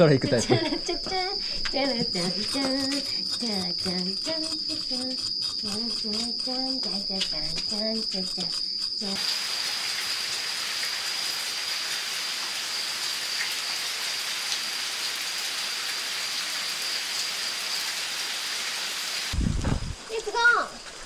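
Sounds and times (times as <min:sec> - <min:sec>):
high-pitched insect trill: 0:00.0 - 0:19.3
rain falling: 0:09.2 - 0:21.0.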